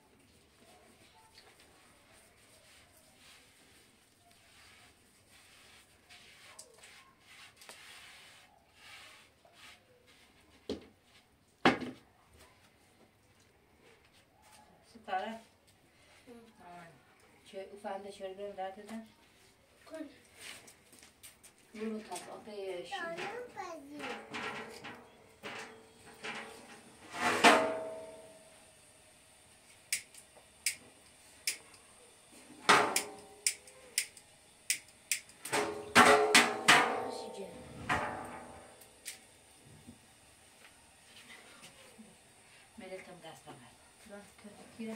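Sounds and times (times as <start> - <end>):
metal clank ringing: 27.4 - 28.3.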